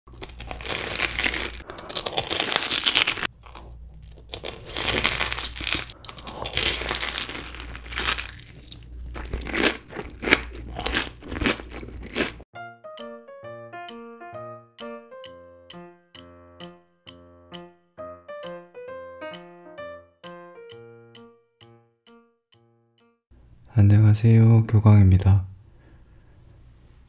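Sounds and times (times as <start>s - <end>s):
crunching bites and chewing: 0.1s - 12.4s.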